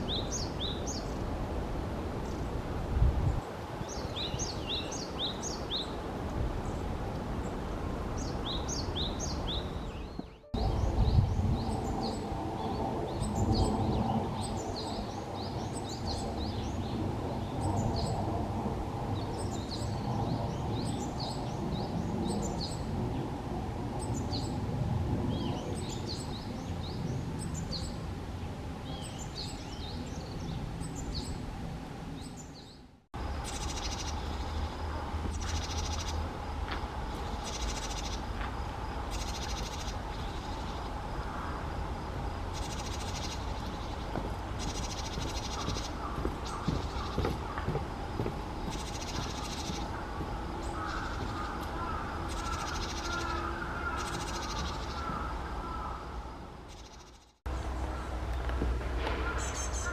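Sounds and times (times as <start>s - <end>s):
bird harsh alarm calls: 33.4s - 36.2s, 39.1s - 41.6s, 42.6s - 47.9s, 48.6s - 56.0s.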